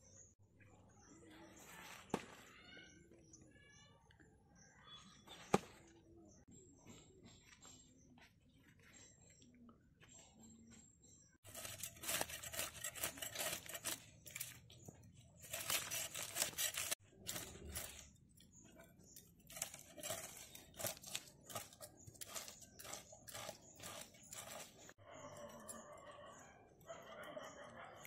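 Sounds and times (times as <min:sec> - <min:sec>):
fish scales rasping on blade: 0:11.5 - 0:14.6, 0:15.4 - 0:18.0.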